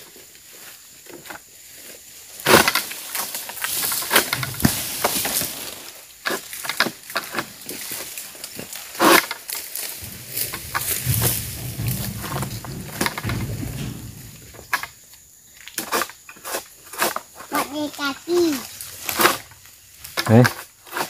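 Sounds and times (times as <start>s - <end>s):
palm fronds rustling: 0.0s - 21.0s
sickle hacking at palm stalks: 2.4s - 13.2s
low rumble: 10.0s - 14.8s.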